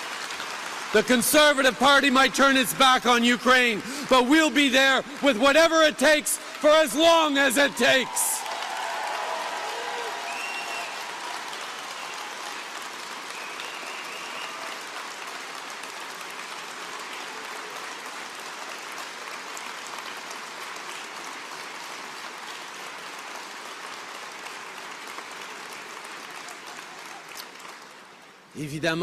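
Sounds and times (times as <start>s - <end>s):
audience applauding: 0.0s - 28.5s.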